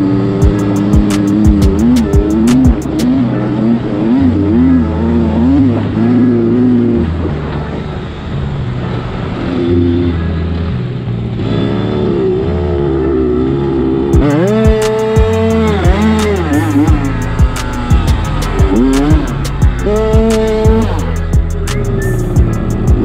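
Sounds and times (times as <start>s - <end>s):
two-stroke motorcycle engine revving: 0.0s - 23.0s.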